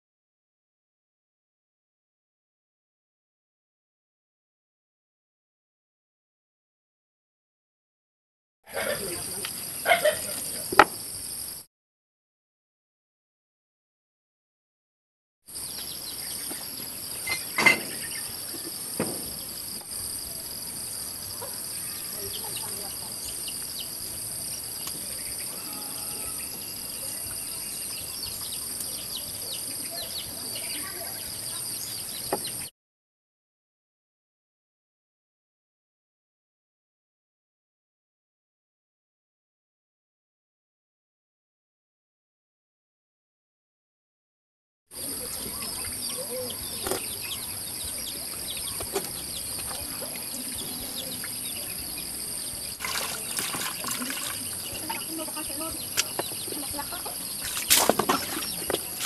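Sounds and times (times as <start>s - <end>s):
insects trilling: 8.7s - 11.6s, 15.5s - 32.7s, 45.0s - 59.0s
bird chirps: 15.5s - 32.7s, 45.0s - 59.0s.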